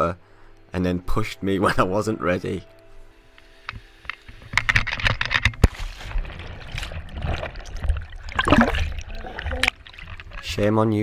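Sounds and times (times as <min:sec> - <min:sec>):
underwater churning and bubbling: 0:04.0 - 0:11.0
body splashing into water: 0:06.0 - 0:10.5.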